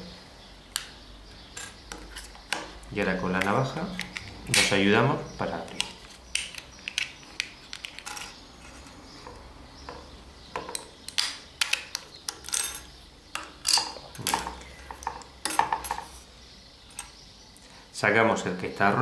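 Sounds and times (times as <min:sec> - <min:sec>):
clicks and clatter of small parts: 0:05.7 - 0:08.4.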